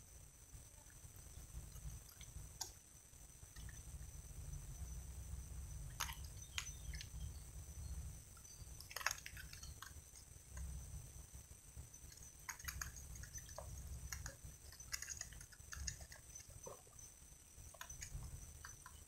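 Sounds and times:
sharp clicks: 12.1s - 16.5s.

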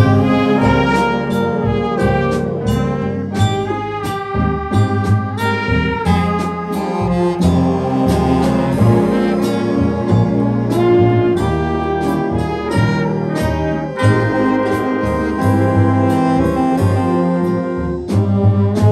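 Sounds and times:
short percussive hits: 0.0s - 15.0s
jazz big band playing: 0.0s - 18.9s
low bass line: 0.0s - 18.9s.

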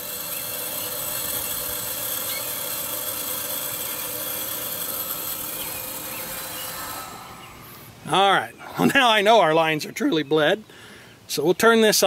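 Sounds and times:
refrigerant gas hissing: 0.0s - 8.7s.

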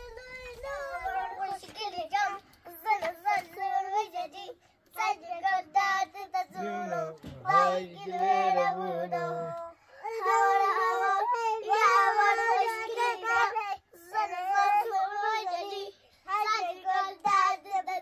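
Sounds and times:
young children singing: 0.0s - 18.0s
lower voice singing along: 6.3s - 15.3s.

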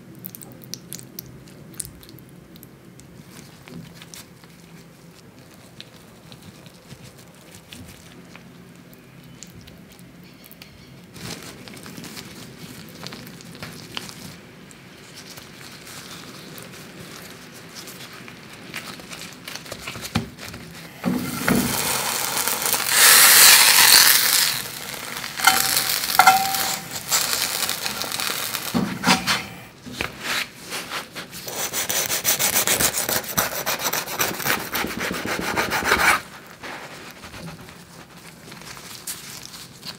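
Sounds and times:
tortilla rolled with crackling: 0.1s - 31.5s, 32.1s - 39.9s
knife sawing crisp tortilla: 30.2s - 37.6s.

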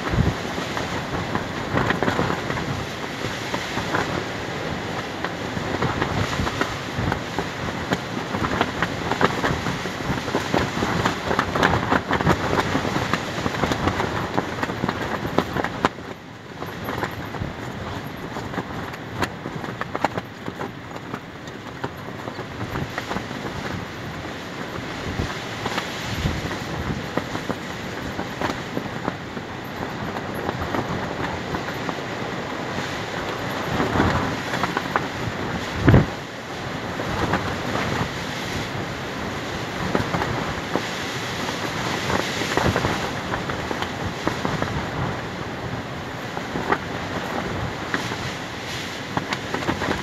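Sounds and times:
fabric sheet flapping: 0.0s - 16.0s, 16.6s - 50.0s
wind buffeting microphone: 0.0s - 50.0s.

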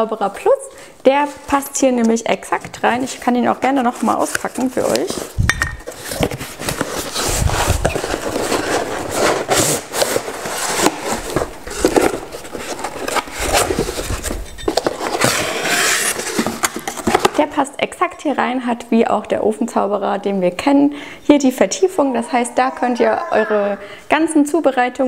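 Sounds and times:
cardboard scraping and rustling: 2.5s - 17.4s.

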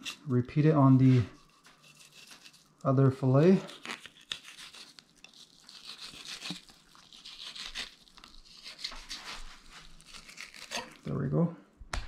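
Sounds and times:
knife scraping fish skin: 0.0s - 0.3s, 1.0s - 2.8s, 3.6s - 11.1s.

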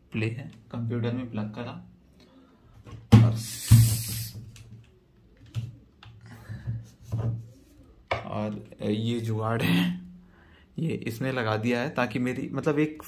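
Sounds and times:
brief hiss: 3.4s - 4.5s.

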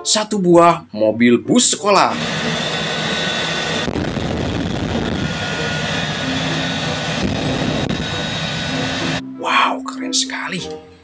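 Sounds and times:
jet engine rushing with whine: 2.0s - 9.2s.

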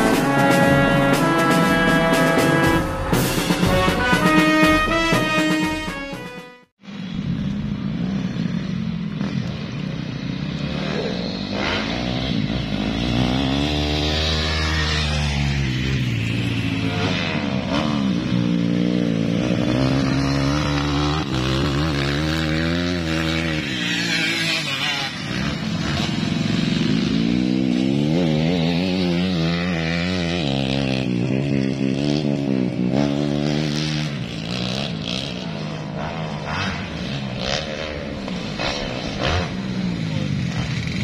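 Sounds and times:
dirt bike engines revving: 0.0s - 6.0s, 6.8s - 41.0s.

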